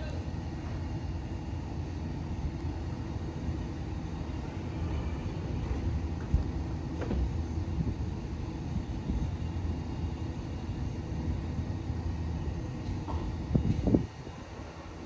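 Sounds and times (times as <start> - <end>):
electric train rumbling: 0.0 - 15.0.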